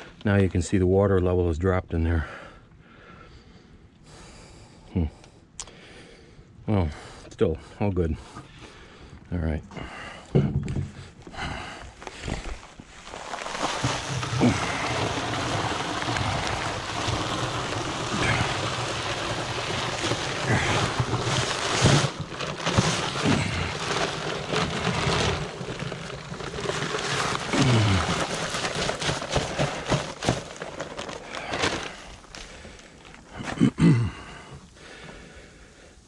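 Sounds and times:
knocks and crackles of bag: 10.4s - 35.2s
dry cement pouring hiss: 11.4s - 36.0s.

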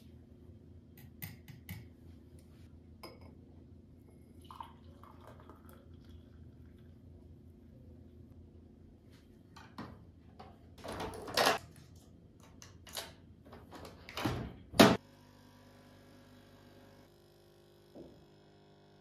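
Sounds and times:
coffee machine pump humming: 15.0s - 19.0s.

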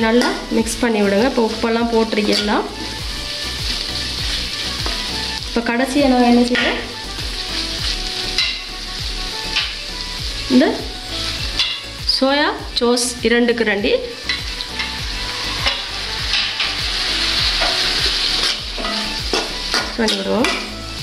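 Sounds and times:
food sizzling in metal pan: 0.0s - 21.0s
metal spoon stirring: 1.0s - 3.0s.

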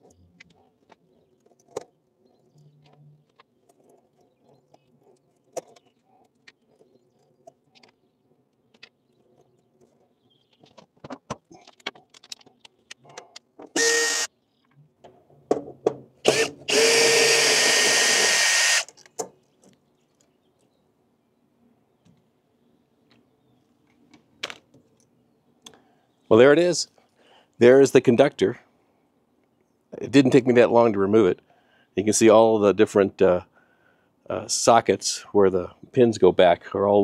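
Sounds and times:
cordless drill running: 13.8s - 14.3s, 16.2s - 18.9s.

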